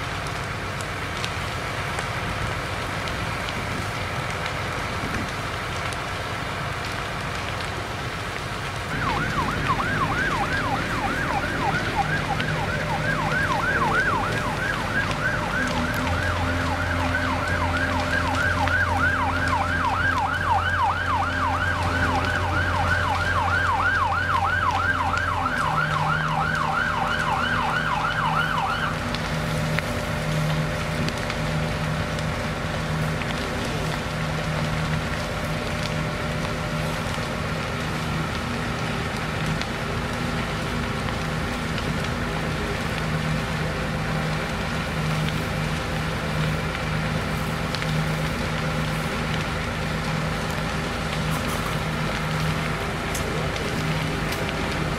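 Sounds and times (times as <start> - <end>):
large fire crackling: 0.0 - 54.9
steady engine hum: 0.0 - 54.9
siren yelping: 8.9 - 29.0.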